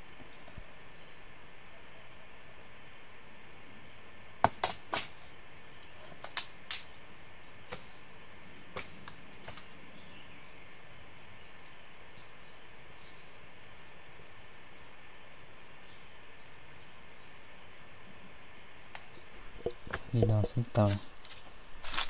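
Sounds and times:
forest insects droning: 0:00.0 - 0:22.0.

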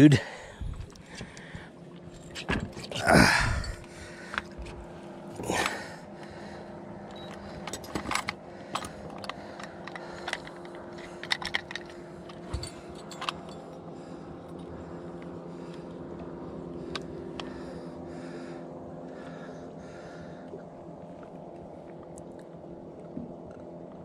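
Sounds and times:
fishing gear clicking and jingling: 0:02.1 - 0:04.8, 0:07.1 - 0:14.7.

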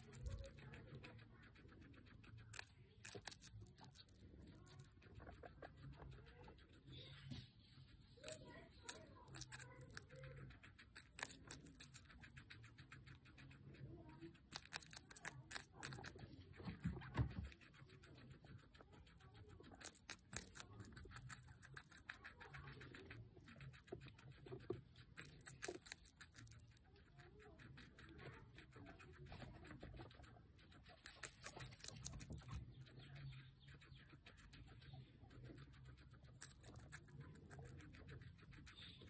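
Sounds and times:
guinea pig crunching pepper: 0:00.0 - 0:39.0.

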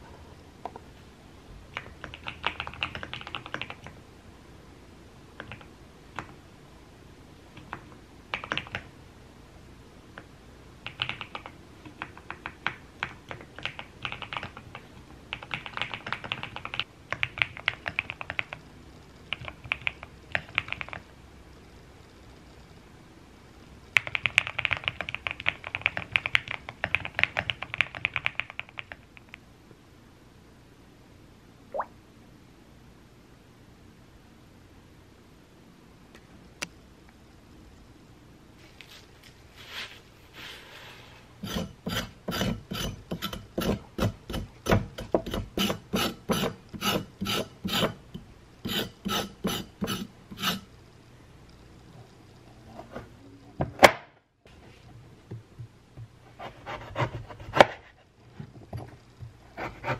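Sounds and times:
mechanical keyboard typing: 0:01.8 - 0:03.9, 0:08.3 - 0:08.9, 0:10.8 - 0:18.6, 0:19.3 - 0:21.1, 0:24.0 - 0:29.0.

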